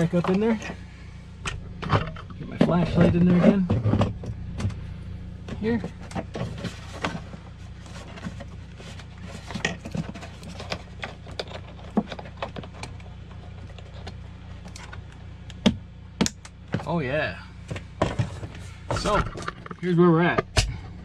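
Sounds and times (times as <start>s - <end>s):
steady low hum: 0.0s - 21.0s
rustling of wires and plastic: 5.5s - 15.2s.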